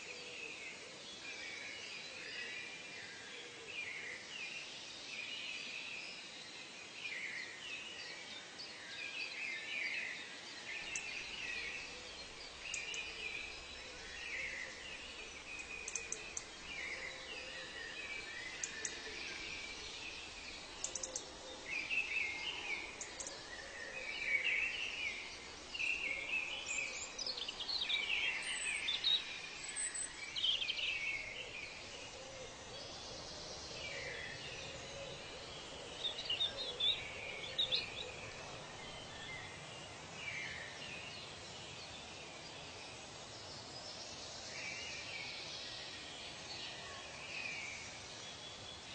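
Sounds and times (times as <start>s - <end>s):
faint background hiss: 0.0s - 48.9s
birds chirping: 10.2s - 46.8s.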